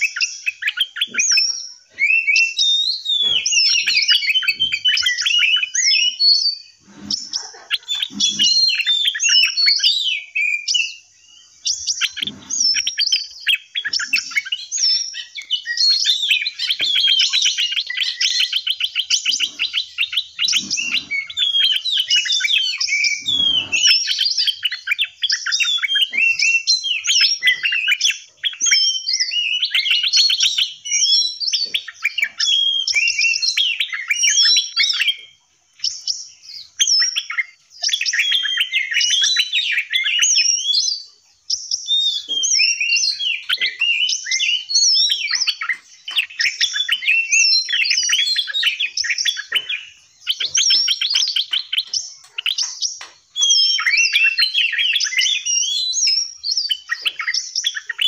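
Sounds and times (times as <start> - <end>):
songbirds singing and chirping: 0.0 - 58.0
fast rattling bird trill: 7.2 - 10.2, 11.5 - 35.2.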